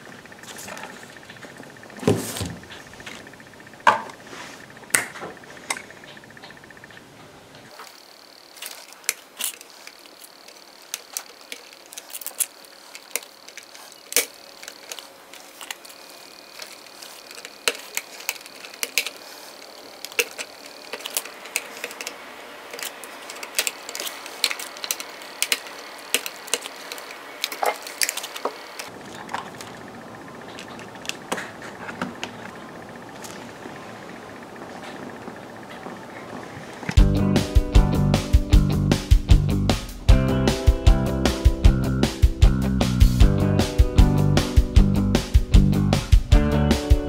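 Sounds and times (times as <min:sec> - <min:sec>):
hobby knife clicking and scraping: 0:08.6 - 0:28.9.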